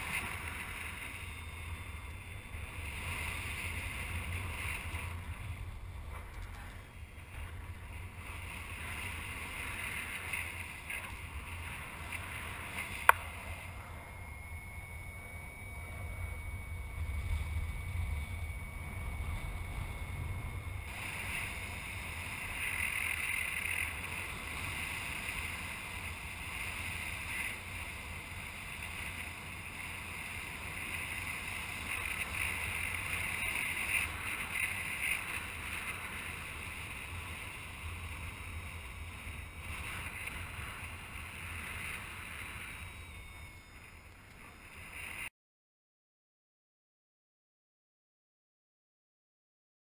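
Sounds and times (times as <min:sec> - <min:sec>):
bright wind hiss: 0:00.0 - 0:45.3
wind noise with low rumble: 0:00.0 - 0:45.3.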